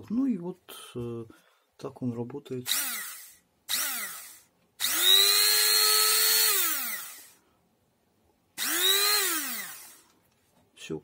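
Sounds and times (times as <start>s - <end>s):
hand blender motor whine: 2.7s - 7.4s, 8.6s - 10.0s.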